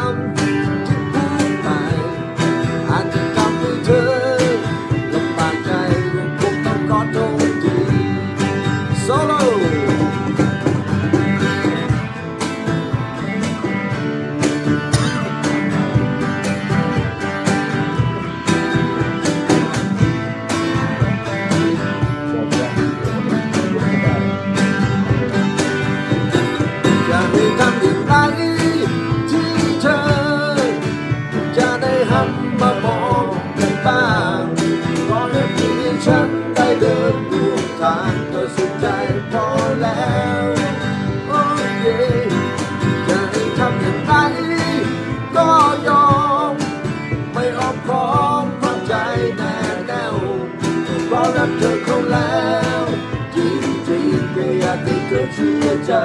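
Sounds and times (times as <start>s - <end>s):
man singing slow ballad: 0.0s - 10.6s, 26.4s - 56.0s
acoustic guitar strummed and picked: 0.0s - 56.0s.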